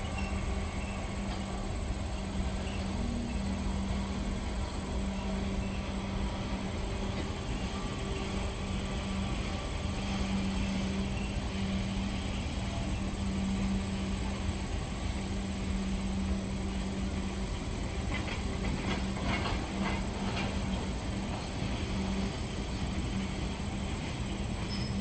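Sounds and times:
train wheels rumbling on rail: 0.0s - 25.0s.

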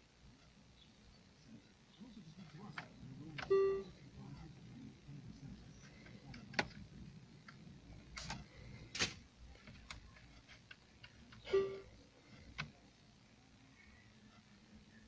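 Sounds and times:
short tone: 3.5s - 3.9s, 11.5s - 11.9s.

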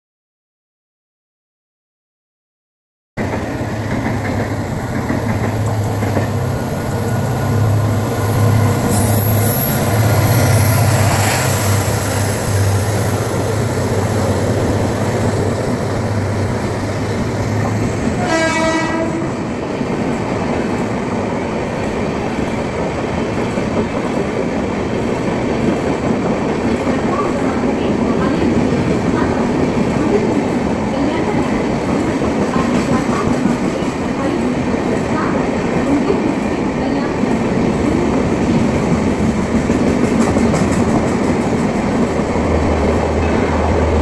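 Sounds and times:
train wheels clickety-clack: 3.2s - 7.3s, 21.6s - 44.0s
train horn: 18.2s - 19.5s.

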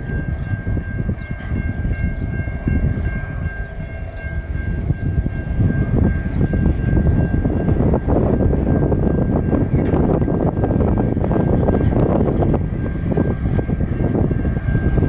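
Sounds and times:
train wagons rumbling and clattering: 0.0s - 15.0s.

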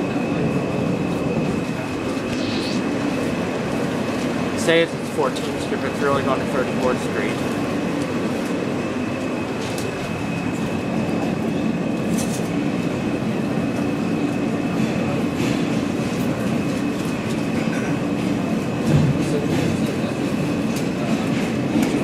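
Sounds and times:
subway wheels rumbling on rail: 0.0s - 22.0s
thin high whine: 1.2s - 3.6s.

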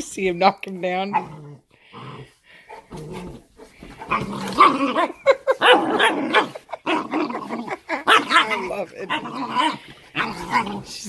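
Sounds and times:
dogs growling: 0.9s - 11.0s
dogs barking: 4.0s - 10.7s.

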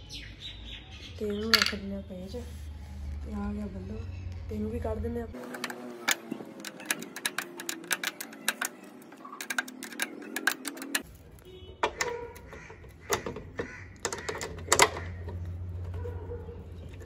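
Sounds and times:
spanner clicking on nuts: 5.4s - 16.0s
metal taps: 11.6s - 15.5s.

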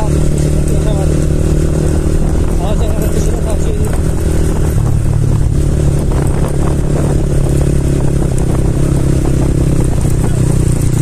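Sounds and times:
motorcycle engines running: 0.0s - 11.0s.

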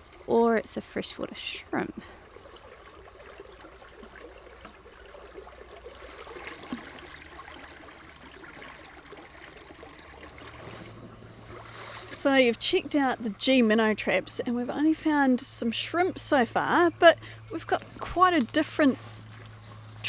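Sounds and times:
stream water flowing: 0.0s - 20.0s.

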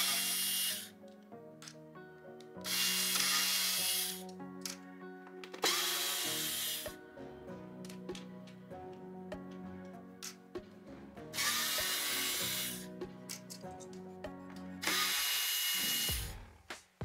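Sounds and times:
electric screwdriver running: 0.0s - 0.9s, 2.6s - 4.2s, 5.6s - 6.9s, 11.4s - 12.8s, 14.8s - 16.3s
background music: 0.0s - 17.0s.

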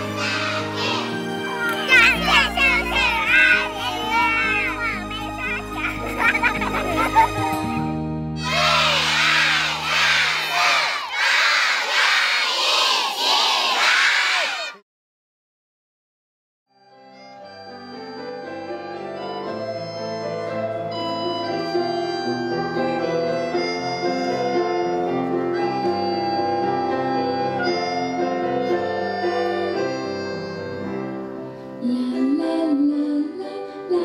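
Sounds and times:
instrumental music with sustained chords: 1.0s - 8.4s
person singing: 31.8s - 34.0s.

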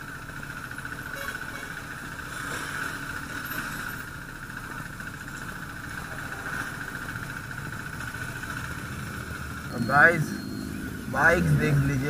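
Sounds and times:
motorcycle engines idling: 0.0s - 12.0s
high-pitched hum: 6.0s - 12.0s.

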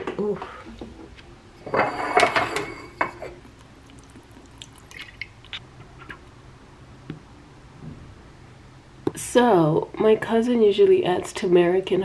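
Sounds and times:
liquid dripping into glass mug: 3.4s - 5.6s.

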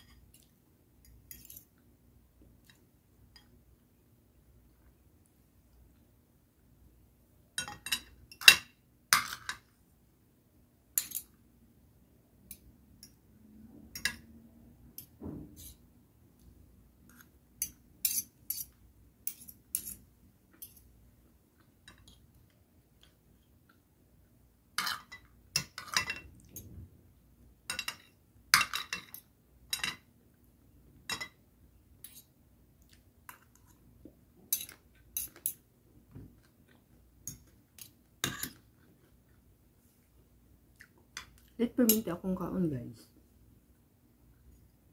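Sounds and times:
cutlery clinking on a plate: 1.0s - 1.7s, 7.6s - 9.6s, 11.0s - 11.4s, 13.9s - 14.3s, 24.8s - 26.7s, 27.7s - 30.1s, 34.5s - 35.6s, 37.3s - 38.6s.

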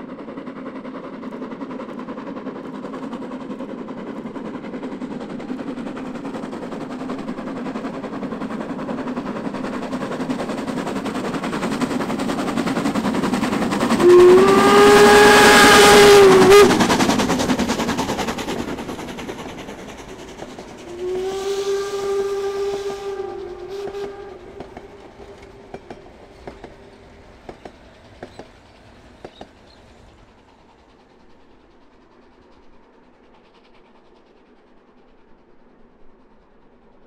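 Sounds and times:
coach wheels clicking on rails: 0.0s - 37.0s
steam locomotive exhaust: 0.0s - 37.0s
steam whistle blasts: 13.9s - 17.0s, 20.8s - 25.9s.

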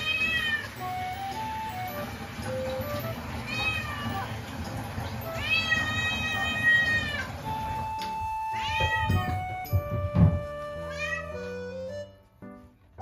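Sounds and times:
cat meowing: 0.0s - 0.8s, 3.4s - 4.3s, 5.3s - 7.4s, 8.4s - 9.4s, 10.8s - 11.6s
background music: 0.8s - 3.8s, 7.4s - 13.0s.

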